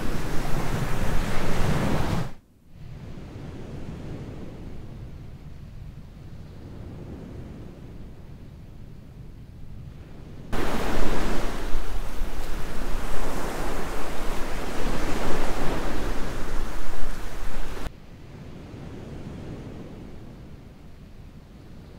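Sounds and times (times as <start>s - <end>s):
surf breaking on shore: 0.0s - 2.4s, 10.6s - 17.9s.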